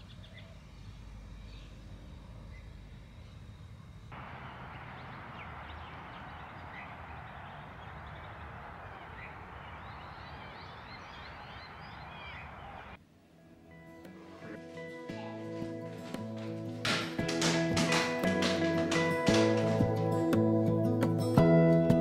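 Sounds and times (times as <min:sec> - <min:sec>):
outdoor hiss: 0:00.0 - 0:15.1
birds chirping: 0:04.2 - 0:13.0.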